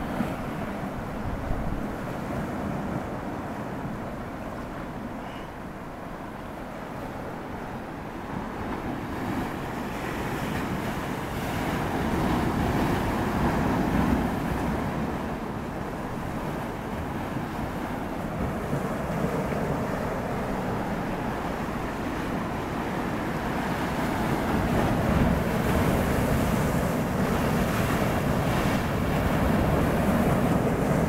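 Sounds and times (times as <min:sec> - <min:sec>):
wind buffeting microphone: 0:08.0 - 0:31.0
waves breaking on rocky shore: 0:08.4 - 0:31.0.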